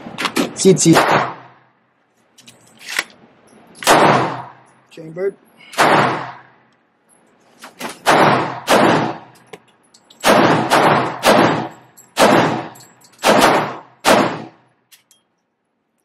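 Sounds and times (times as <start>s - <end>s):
gunshots with echo: 0.8s - 1.6s, 3.8s - 4.7s, 5.8s - 6.5s, 8.0s - 9.3s, 10.2s - 14.6s.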